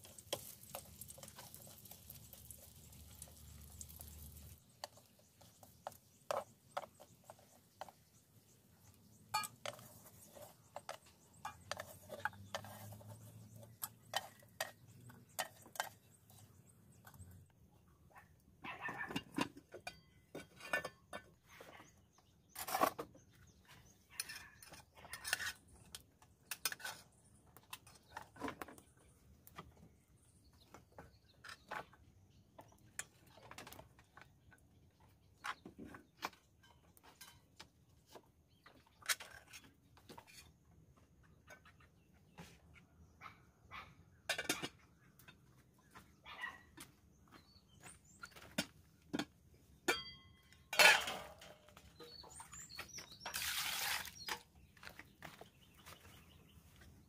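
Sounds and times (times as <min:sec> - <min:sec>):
spoon scraping a metal pot: 0:09.3 - 0:17.3.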